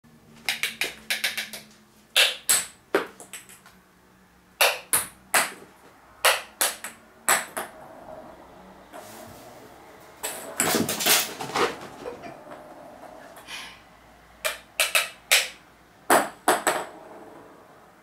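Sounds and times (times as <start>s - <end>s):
table tennis ball clicks: 0.4s - 3.7s, 14.4s - 16.8s.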